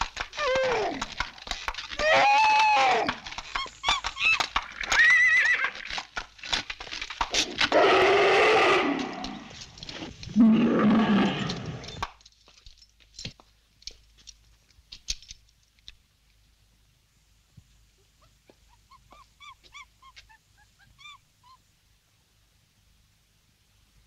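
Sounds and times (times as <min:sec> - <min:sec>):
donkey braying: 0:00.1 - 0:06.0.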